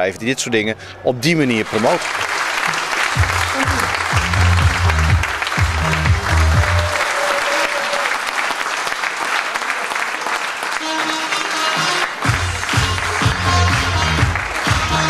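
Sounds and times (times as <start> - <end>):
crowd applauding: 1.4 - 15.0
music with low bass line: 3.2 - 6.9, 12.3 - 15.0.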